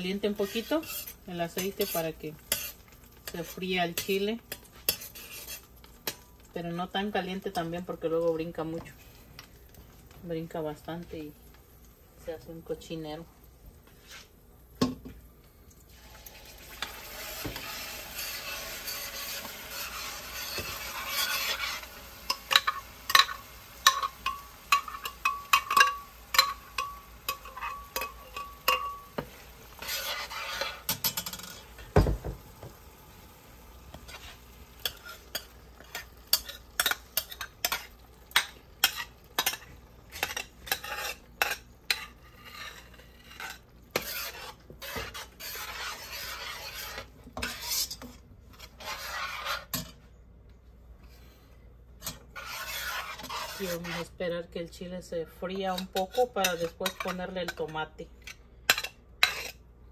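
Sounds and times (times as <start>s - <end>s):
utensil stirring and clinking: 0.0s - 6.3s, 16.7s - 32.3s, 34.0s - 50.0s, 52.0s - 54.1s
chiles sizzling in hot oil: 0.0s - 50.0s, 52.0s - 59.9s.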